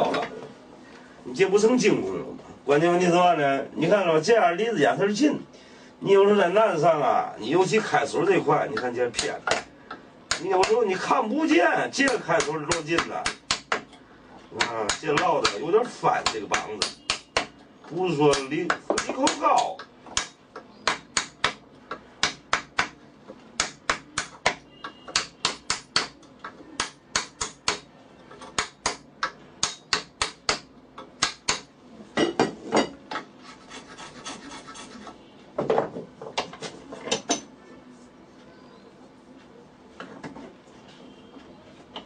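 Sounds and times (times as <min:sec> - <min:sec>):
hammer striking wood chisel: 0:08.8 - 0:10.8, 0:12.0 - 0:14.0, 0:14.6 - 0:15.6, 0:16.2 - 0:17.6, 0:18.3 - 0:23.0, 0:23.6 - 0:31.7.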